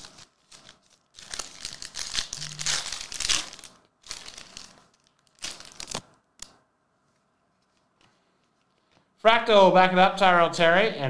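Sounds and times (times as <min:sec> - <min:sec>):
foil wrapper crinkling: 0:00.0 - 0:06.5.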